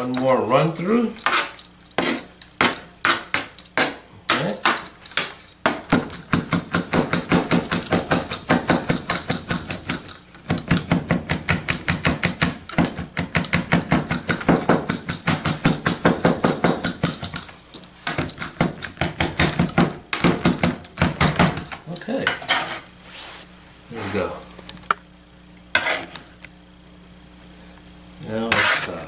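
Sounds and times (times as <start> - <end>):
knife chopping on cutting board: 1.2 - 22.8.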